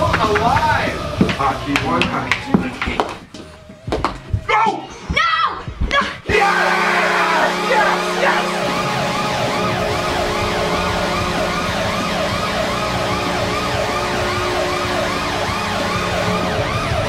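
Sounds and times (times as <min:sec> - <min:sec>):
siren-like wail: 0:06.3 - 0:17.0
steady low drone: 0:06.4 - 0:17.0.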